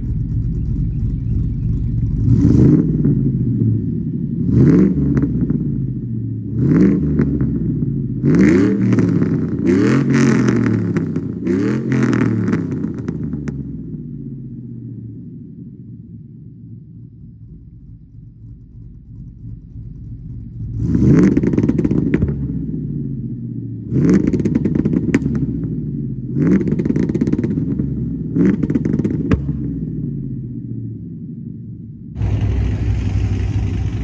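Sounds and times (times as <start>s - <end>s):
engine idling and revving: 0.0s - 34.0s.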